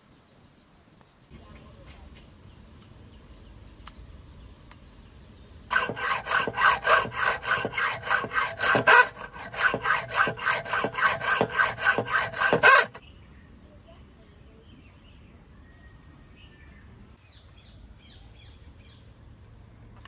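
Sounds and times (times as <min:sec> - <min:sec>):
hand saw rasping strokes: 0:05.7 - 0:13.0.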